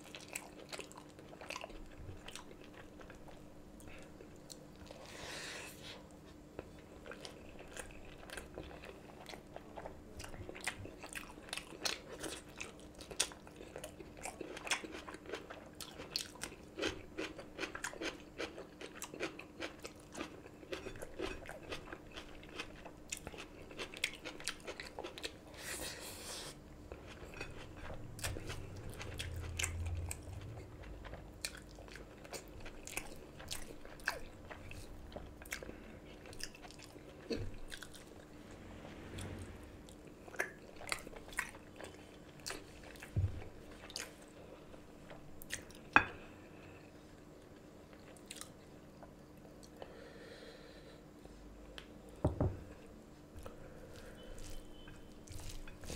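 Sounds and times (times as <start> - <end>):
close chewing: 6.6 - 25.6, 26.9 - 38.3, 53.4 - 55.9.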